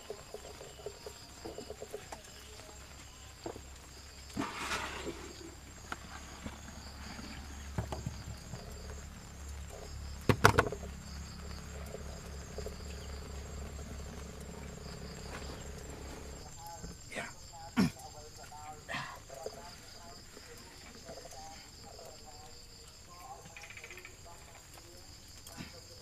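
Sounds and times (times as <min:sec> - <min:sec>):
insects chirring: 0:00.0 - 0:26.0
low hum: 0:08.3 - 0:17.1
sharp knocks: 0:10.3 - 0:10.9.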